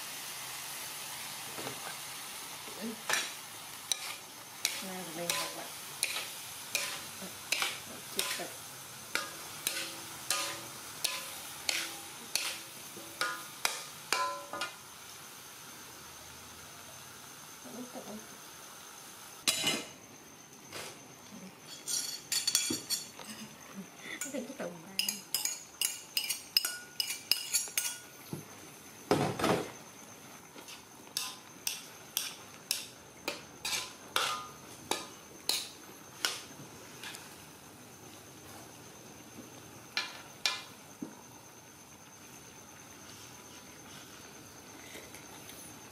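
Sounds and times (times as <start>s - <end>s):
metal utensil scraping a pan: 3.9s - 14.8s, 21.7s - 23.6s, 25.0s - 28.1s, 30.7s - 36.4s
metal spoon clinking on dishes: 9.2s - 12.6s, 13.2s - 14.7s, 21.7s - 23.5s, 25.0s - 28.1s
spoon clatter: 25.0s - 28.0s.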